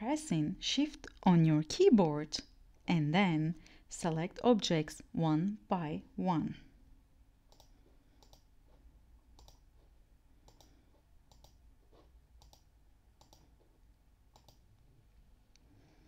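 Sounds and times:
faint computer mouse clicks: 7.5 - 8.5, 9.4 - 9.6, 10.4 - 11.6, 12.4 - 13.5, 14.3 - 14.6.

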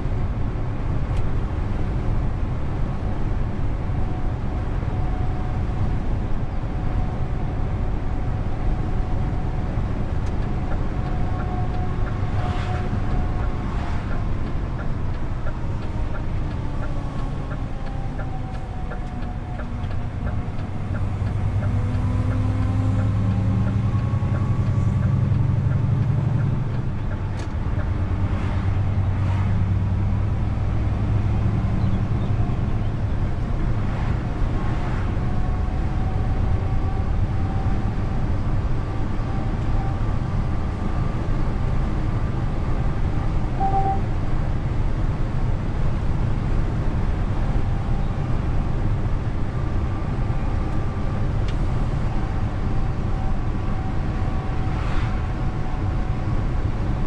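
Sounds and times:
road noise: 0.0 - 57.0
truck diesel engine drone: 0.0 - 57.0.

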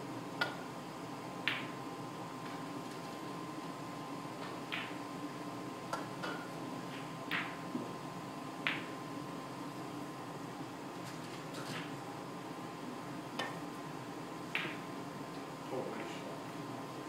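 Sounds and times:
cue striking ball click: 8.7 - 9.0, 14.6 - 14.8.

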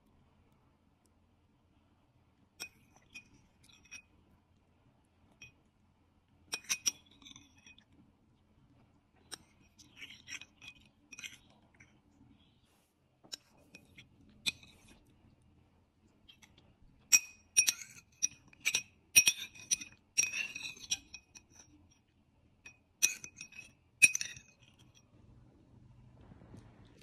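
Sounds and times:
metal spoon clinking on ceramic bowl: 2.6 - 4.1, 6.5 - 7.8, 17.1 - 21.7, 22.6 - 25.0.

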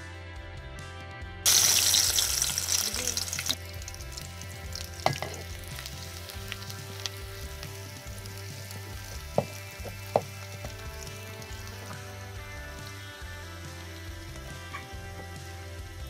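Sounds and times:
onions sizzling in oil: 1.5 - 16.0
wooden spatula knocks: 9.3 - 10.8.

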